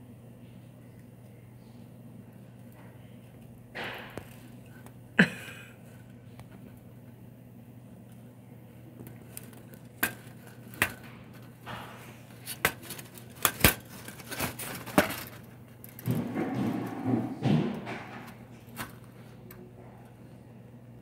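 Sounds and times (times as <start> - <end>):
rustling shuffle: 11.4 - 17.4.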